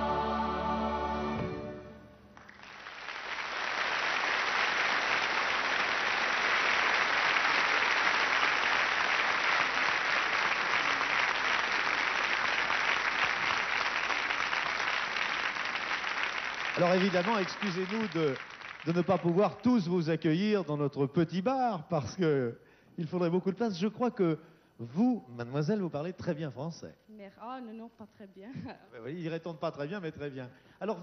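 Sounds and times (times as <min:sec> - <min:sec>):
choir singing chord: 0:00.0 - 0:02.2
audience applauding: 0:02.4 - 0:20.0.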